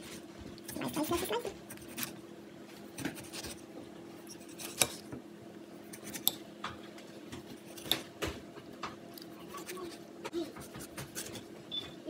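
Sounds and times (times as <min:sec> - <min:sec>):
knife slicing tomato: 0:04.3 - 0:05.1, 0:05.8 - 0:06.4, 0:09.2 - 0:11.4.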